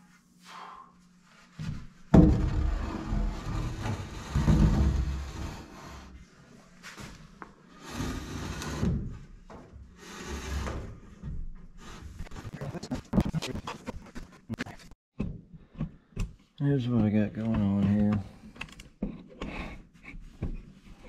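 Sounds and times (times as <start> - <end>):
wood scraping and knocking: 1.6 - 6.0, 17.0 - 18.3.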